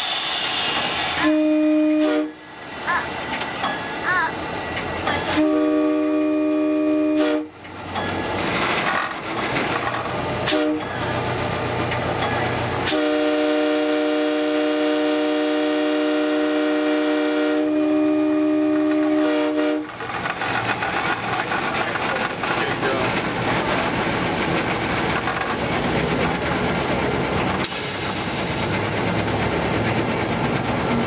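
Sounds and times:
locomotive rumbling: 0:00.0 - 0:31.0
locomotive air horn blasts: 0:01.2 - 0:02.4, 0:05.2 - 0:07.6, 0:10.4 - 0:10.9, 0:12.8 - 0:19.9.

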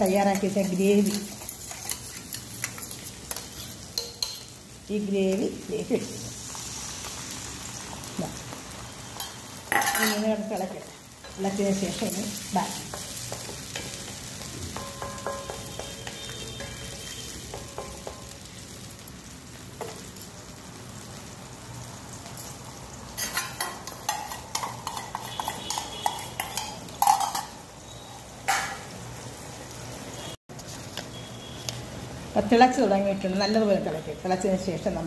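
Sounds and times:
metal spatula scraping a pan: 0:00.0 - 0:04.5, 0:09.2 - 0:18.1, 0:23.2 - 0:28.8
food sizzling in a metal pan: 0:00.0 - 0:35.0.

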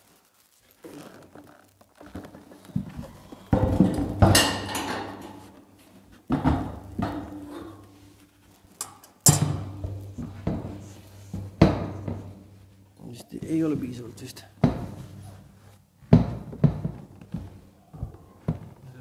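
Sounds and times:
heavy metal bangs and clanks: 0:03.6 - 0:05.5, 0:09.3 - 0:12.8.

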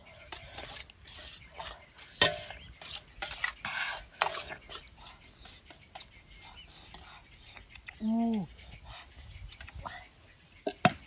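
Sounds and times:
spoon stirring wet paste: 0:00.3 - 0:07.7.

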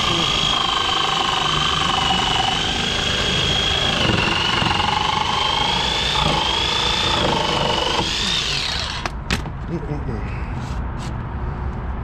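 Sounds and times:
power tool cutting plastic: 0:00.0 - 0:09.2.

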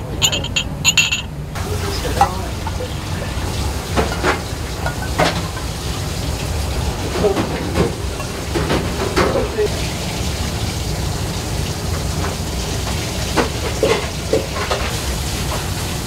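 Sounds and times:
ladle clinking on porcelain cups: 0:00.2 - 0:01.3.

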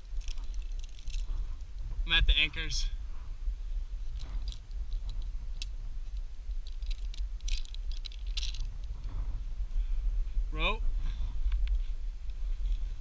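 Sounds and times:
climbing gear clicking: 0:00.0 - 0:01.9, 0:04.1 - 0:09.2
low steady rumble: 0:00.0 - 0:13.0.

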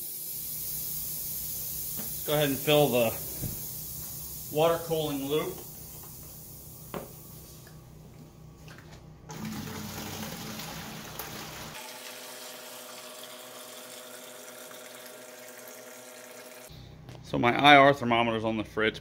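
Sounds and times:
steady hum: 0:00.0 - 0:09.3
water running: 0:01.9 - 0:07.7, 0:09.3 - 0:16.7.

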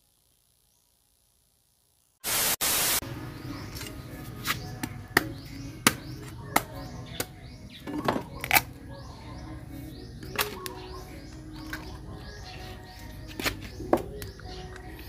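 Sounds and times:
static hiss burst: 0:02.0 - 0:03.0
machete chopping pod: 0:03.8 - 0:07.4, 0:10.3 - 0:10.8, 0:13.3 - 0:14.4.

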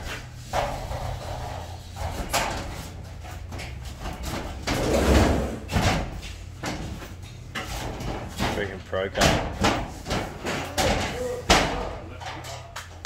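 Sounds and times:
wall sheet scraping and rubbing: 0:00.0 - 0:03.1, 0:04.0 - 0:05.7.

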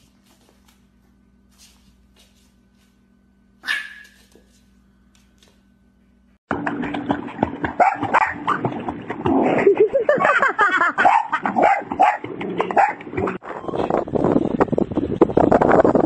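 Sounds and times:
dog barking and yipping: 0:03.6 - 0:04.4, 0:07.8 - 0:08.6, 0:11.0 - 0:13.1
water splashing: 0:06.5 - 0:10.4.

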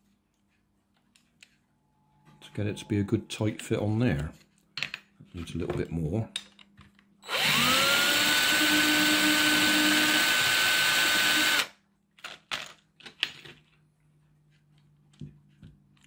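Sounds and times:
drill motor whine: 0:07.2 - 0:11.7.

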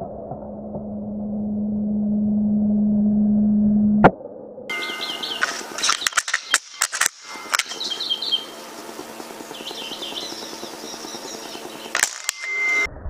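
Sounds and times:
small songbird chirping: 0:04.7 - 0:12.8
sharp clicks or knocks: 0:05.4 - 0:07.9, 0:12.0 - 0:12.6.

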